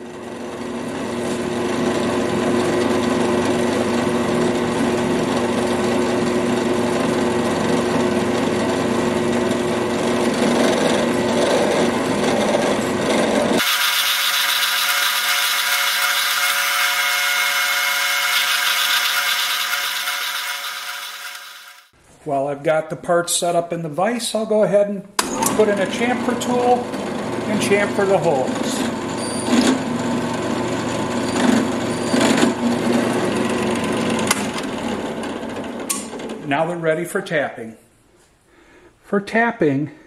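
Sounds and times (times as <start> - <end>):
drill press drilling metal: 13.6 - 21.9
high thin whine: 13.6 - 21.9.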